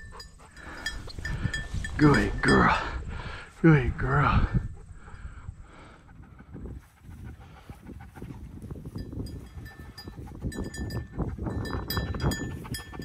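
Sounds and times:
small metallic jingling and clinking: 0.0 - 3.0, 8.9 - 13.0.

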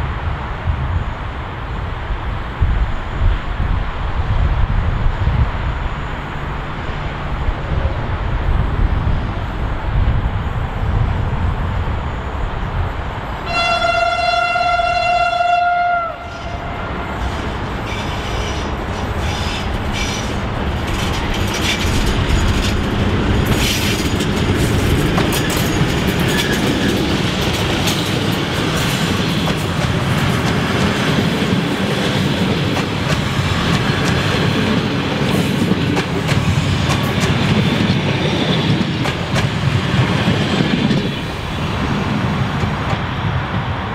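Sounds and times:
locomotive engine rumble: 3.9 - 43.9
locomotive horn blast: 13.4 - 18.1
train wheels clicking over rail joints: 16.4 - 43.8.

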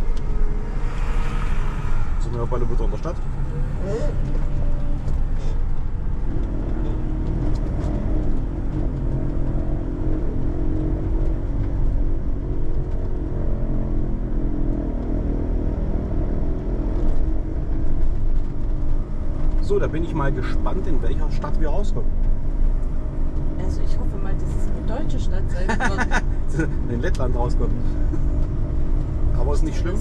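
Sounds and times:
engine drone: 0.0 - 13.9
van road noise rumble: 0.0 - 30.0.

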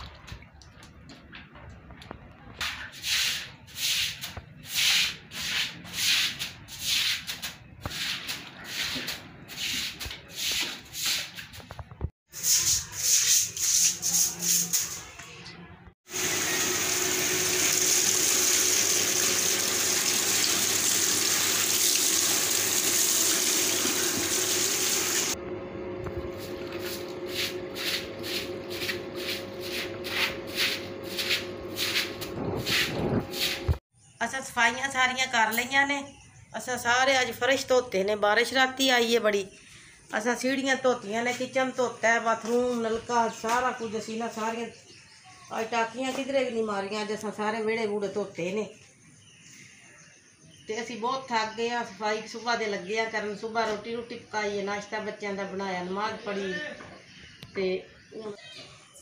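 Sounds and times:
broom sweeping wet concrete: 2.6 - 11.7, 12.3 - 15.2, 26.3 - 33.8
running water: 16.1 - 25.4.

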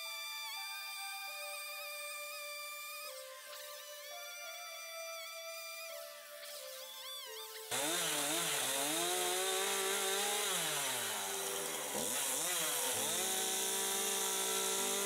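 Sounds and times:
chainsaw cutting into a log: 7.7 - 15.0.

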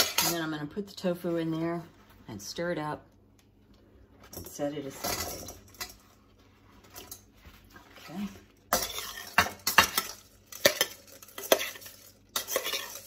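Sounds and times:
fork scraping metal bowl: 8.7 - 13.0.

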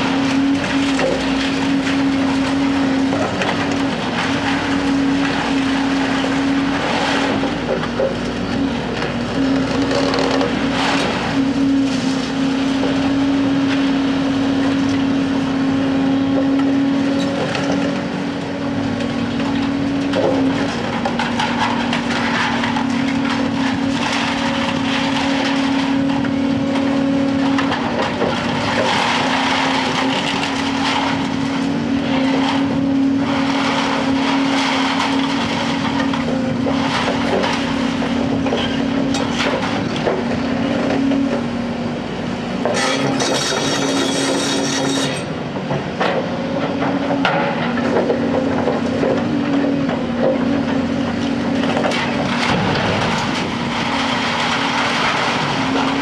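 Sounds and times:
excavator diesel engines: 0.0 - 56.0.

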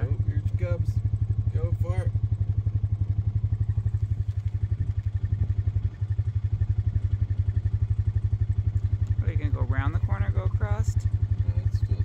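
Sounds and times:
vehicle engine throbbing: 0.0 - 12.0.

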